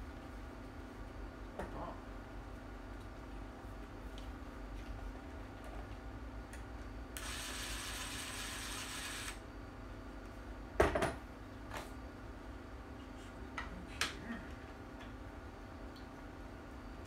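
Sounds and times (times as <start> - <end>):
cordless drill running: 7.2 - 9.4.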